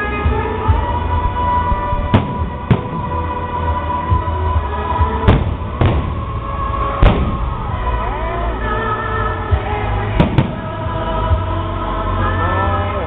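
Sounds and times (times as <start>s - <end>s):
music: 0.0s - 13.0s
firework shells bursting: 10.2s - 11.0s.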